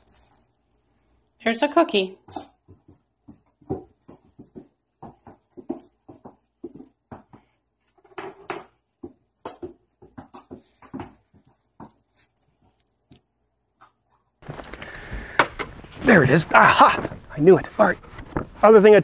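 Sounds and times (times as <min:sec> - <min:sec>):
dog paws scuffing on tile: 0:02.2 - 0:08.0, 0:08.8 - 0:13.2.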